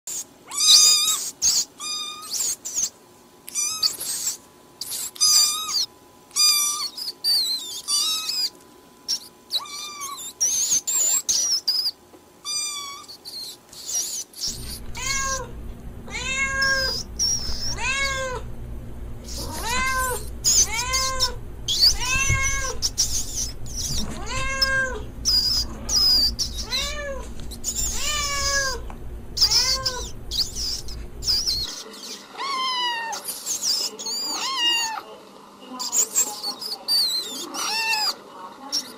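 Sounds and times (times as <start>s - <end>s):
cat meowing: 0.5s - 2.4s, 3.5s - 4.0s, 5.2s - 8.5s, 9.5s - 10.4s, 12.4s - 13.2s, 14.5s - 15.5s, 16.1s - 18.5s, 19.2s - 31.7s, 32.3s - 33.3s, 34.2s - 35.0s, 37.5s - 38.2s
low hum: 14.5s - 31.7s.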